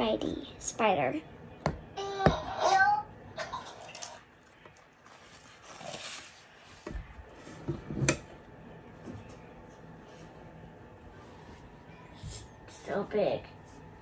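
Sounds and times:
plastic rustling: 3.8 - 6.8.

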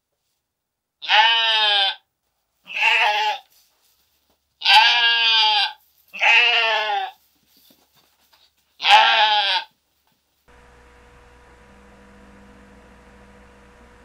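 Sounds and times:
sheep bleating: 1.0 - 2.0, 2.7 - 3.5, 4.6 - 7.2, 8.8 - 9.7.

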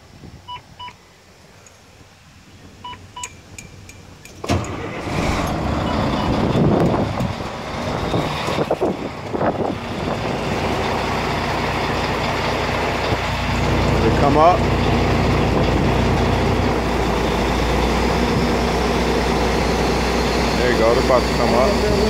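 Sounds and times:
dashboard warning beeps: 0.5 - 1.0, 2.8 - 4.0
diesel truck engine starting: 4.3 - 22.0.

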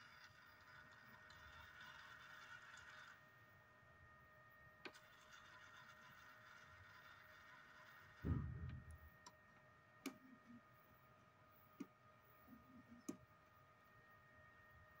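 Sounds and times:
faint steady whine: 0.0 - 15.0
low handling bump: 8.2 - 9.0.

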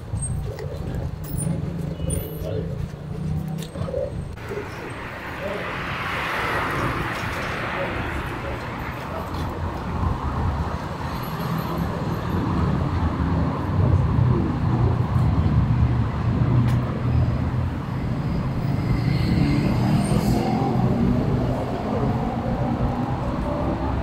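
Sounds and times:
vehicle engines rumbling: 0.0 - 24.0.

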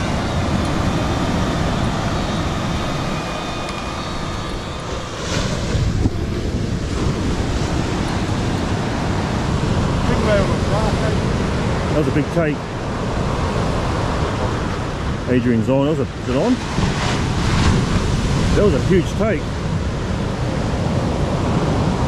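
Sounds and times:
drone propellers whining: 0.0 - 22.0
surf breaking on beach: 0.0 - 22.0
wind buffeting microphone: 0.0 - 22.0.

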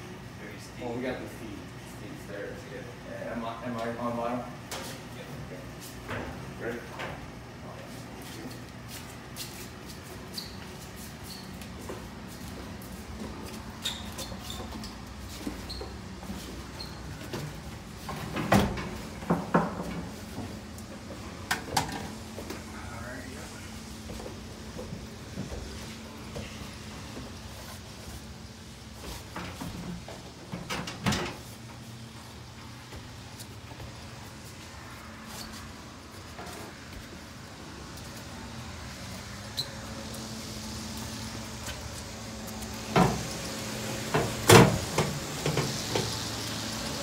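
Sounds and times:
footsteps: 7.7 - 21.4, 23.5 - 30.5, 31.6 - 46.2
steady low hum: 14.9 - 45.7.

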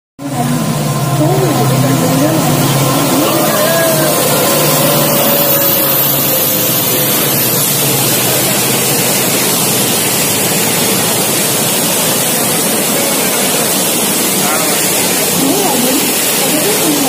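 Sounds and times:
water splashing under train wheels: 0.2 - 17.0.

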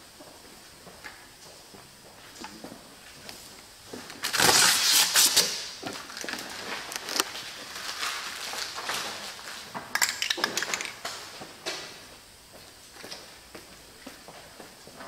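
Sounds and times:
vinyl film crackling: 4.1 - 11.8.

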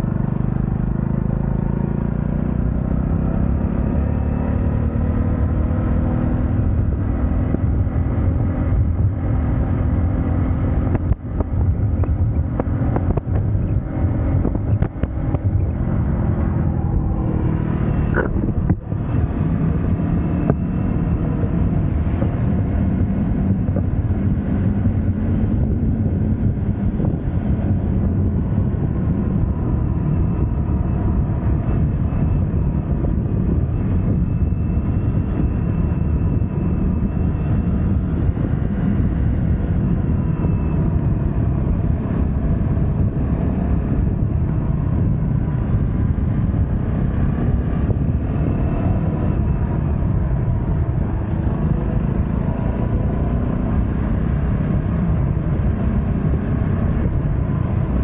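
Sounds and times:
moped engine running: 0.0 - 3.9.

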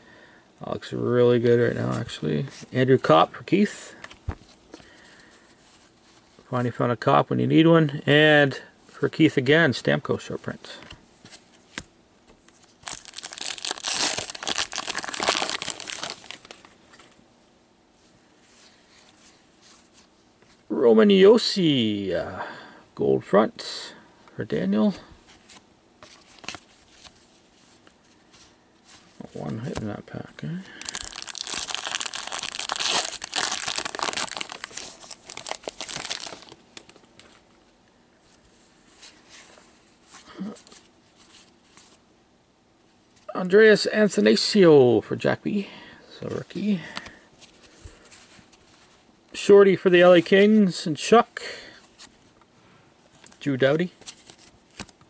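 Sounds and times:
plastic wrapping crumpled by hand: 12.8 - 16.8, 30.7 - 37.3.

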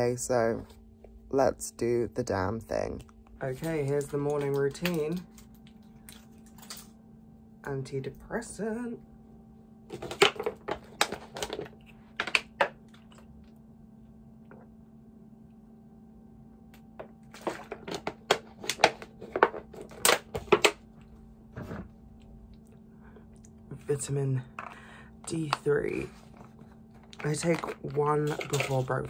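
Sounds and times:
plastic bottle clicking and crinkling: 9.9 - 13.0.

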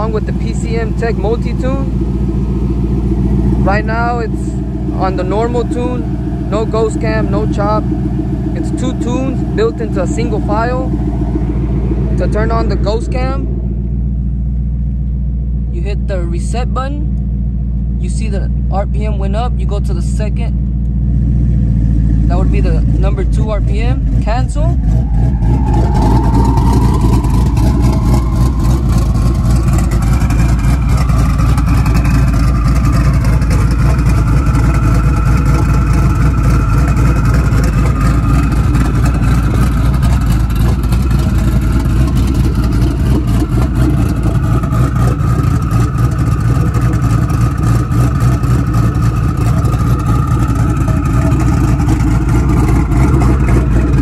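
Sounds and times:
car engine idling with choppy lope: 0.0 - 54.0.

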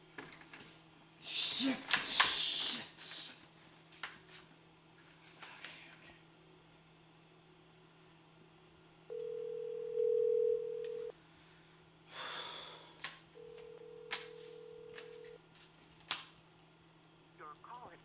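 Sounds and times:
phone ringback tone: 9.1 - 11.1, 13.4 - 15.4.

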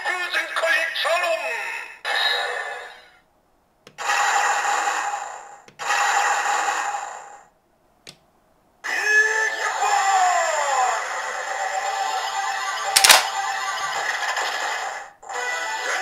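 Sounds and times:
toy click: 13.0 - 13.3.

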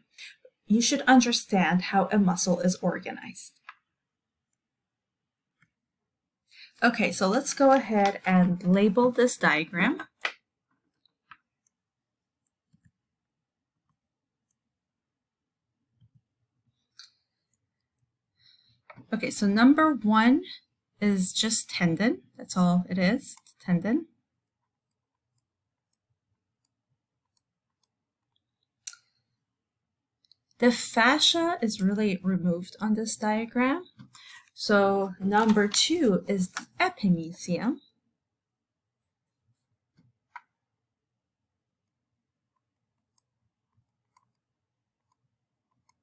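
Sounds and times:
stylus clicking on tablet: 24.4 - 29.2, 41.8 - 46.0.

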